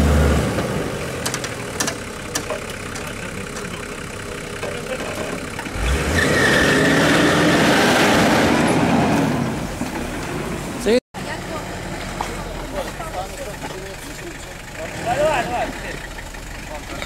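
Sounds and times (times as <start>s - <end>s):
off-road engine labouring: 0.0s - 17.0s
sharp clicks: 1.2s - 3.7s.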